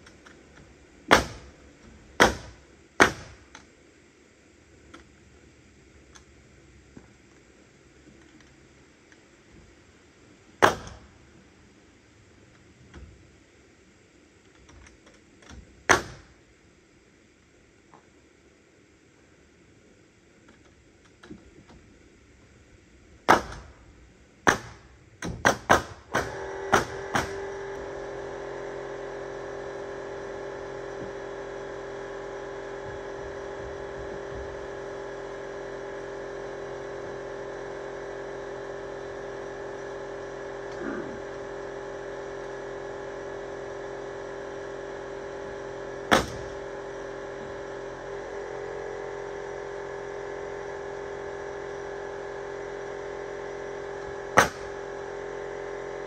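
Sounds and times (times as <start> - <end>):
nailing on wooden boards: 1.1 - 1.5, 24.5 - 27.4, 54.4 - 54.7
motor humming: 26.1 - 56.0.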